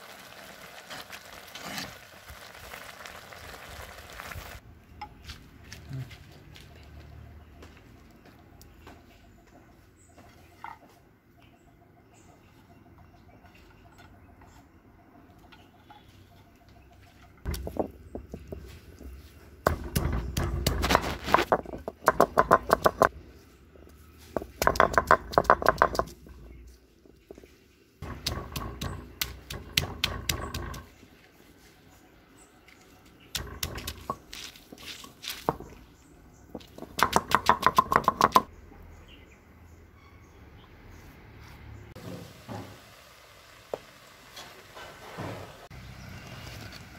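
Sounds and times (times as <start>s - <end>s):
stone roller crushing garlic: 17.5s - 23.1s, 24.3s - 26.5s, 28.0s - 31.0s, 33.3s - 35.8s, 36.6s - 38.4s.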